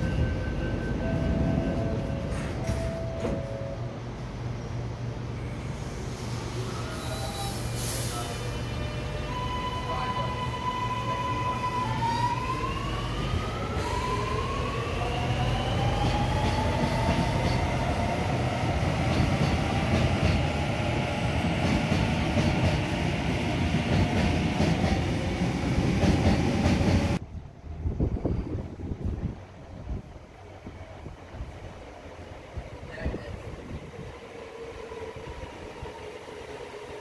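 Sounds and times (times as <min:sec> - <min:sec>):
train wheels rumbling: 0:10.2 - 0:37.0.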